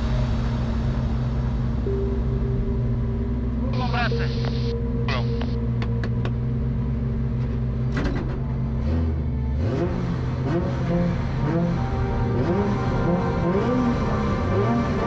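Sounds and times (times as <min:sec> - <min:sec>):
car engine revving: 0:03.4 - 0:15.0.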